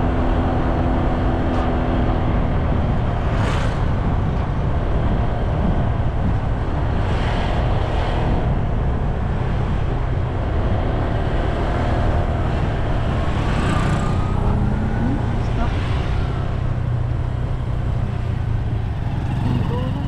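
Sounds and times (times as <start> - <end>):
road vehicle engine noise: 0.0 - 20.0
wind rumble on microphone: 0.0 - 20.0
motorcycle passing: 11.0 - 20.0
motorised tricycle passing: 13.3 - 20.0.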